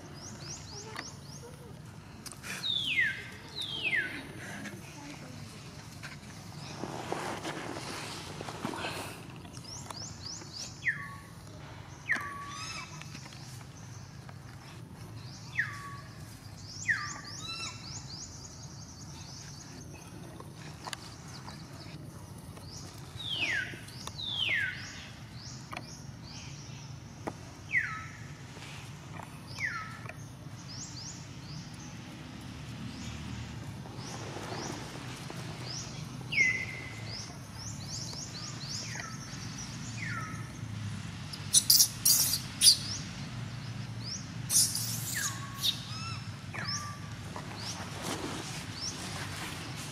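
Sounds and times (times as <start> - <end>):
outdoor background noise: 0.0 - 49.9
high chirping: 41.4 - 43.0, 44.5 - 46.8.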